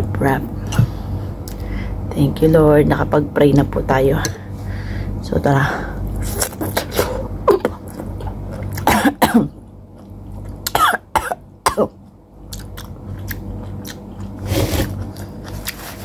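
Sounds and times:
woman coughing: 8.8 - 9.6, 10.7 - 12.0.

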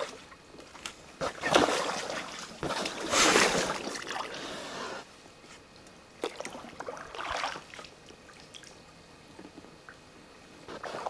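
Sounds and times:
paddle stroke splash: 1.2 - 4.6
paddle swishing water: 1.2 - 5.0.

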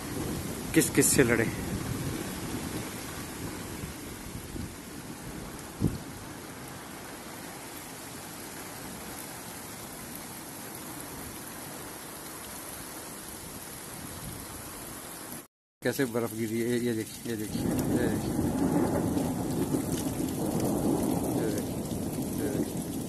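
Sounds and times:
hail and rain falling: 0.0 - 5.9, 15.9 - 23.0.

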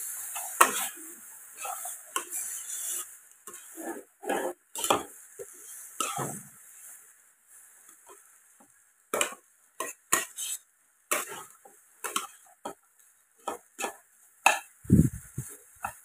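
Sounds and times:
spatula scraping a pan: 0.2 - 7.0, 9.2 - 14.7, 15.4 - 16.0.

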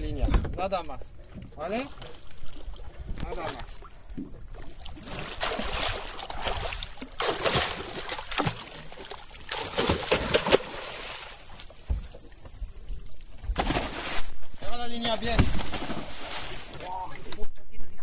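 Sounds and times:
water sloshing: 0.5 - 17.5
fish thrashing and splashing: 4.6 - 12.6, 13.4 - 14.4, 15.1 - 17.0.

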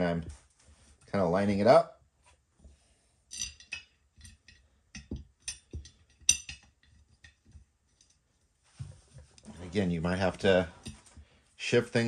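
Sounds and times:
metal bolts and washers clinking: 3.3 - 8.2.

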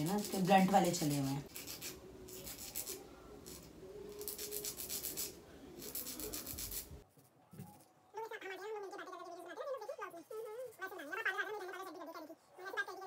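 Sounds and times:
nail file rasping on fingernails: 0.0 - 6.9.

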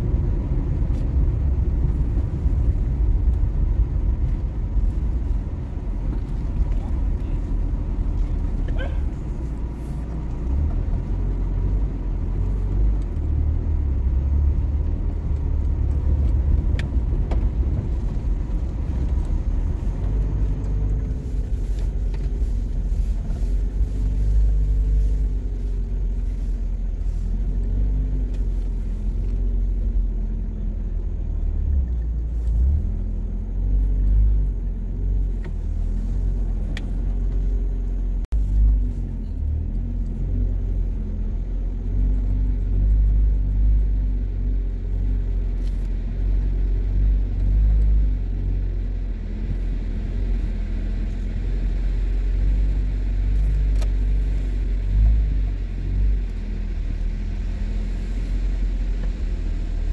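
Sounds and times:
car engines passing: 0.0 - 59.9
low traffic rumble: 0.0 - 59.9.

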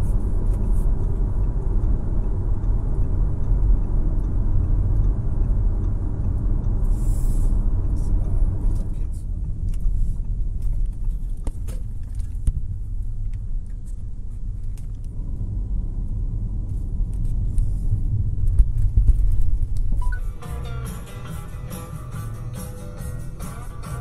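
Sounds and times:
car engine and road rumble: 0.0 - 24.0
background music: 20.0 - 24.0.

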